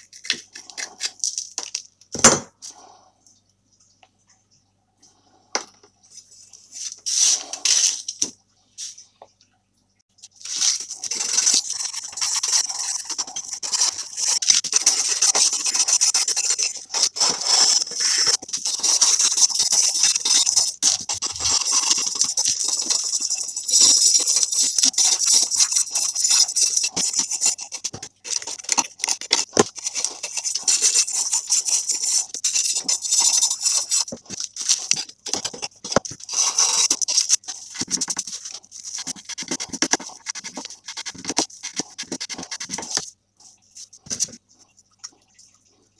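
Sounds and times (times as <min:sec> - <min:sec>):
wire brush scrubbing rusty metal: 0:10.4 - 0:43.1.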